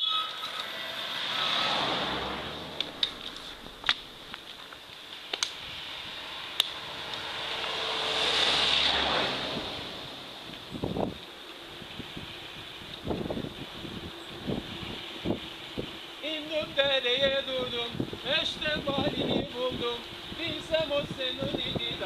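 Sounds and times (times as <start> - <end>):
bicycle tyres rolling on asphalt: 0.1 - 22.0
wind on microphone: 5.6 - 22.0.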